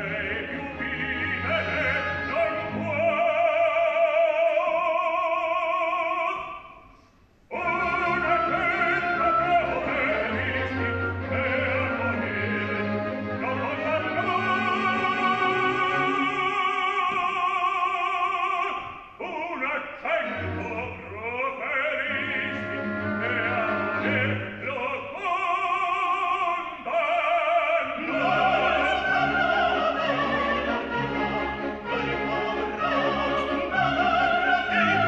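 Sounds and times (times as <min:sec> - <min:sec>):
orchestra playing: 0:00.0 - 0:03.6, 0:07.5 - 0:16.8, 0:20.2 - 0:24.7, 0:28.0 - 0:35.0
operatic singers singing: 0:00.0 - 0:06.4, 0:07.5 - 0:35.0.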